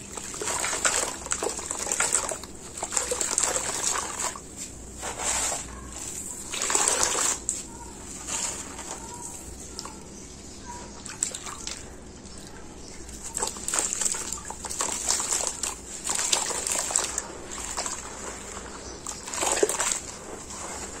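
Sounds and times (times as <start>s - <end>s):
water sloshing: 0.0s - 21.0s
wet gritty squelching: 0.0s - 21.0s.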